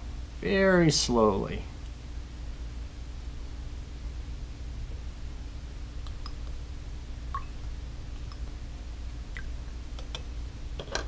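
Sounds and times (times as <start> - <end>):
low hum: 1.6 - 11.0
liquid dripping into glass: 7.3 - 8.6.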